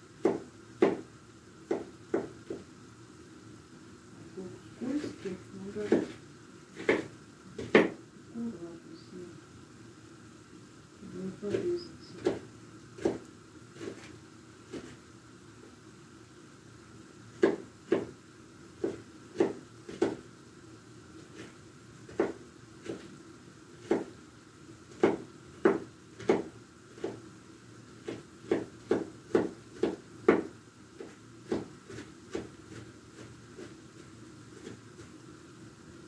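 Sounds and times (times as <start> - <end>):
knife chopping on wooden board: 0.2 - 2.7, 5.8 - 6.2, 6.8 - 8.0, 11.5 - 13.2, 17.4 - 18.2, 18.8 - 20.2, 21.3 - 23.1, 23.8 - 24.2, 24.9 - 27.2, 28.0 - 33.8.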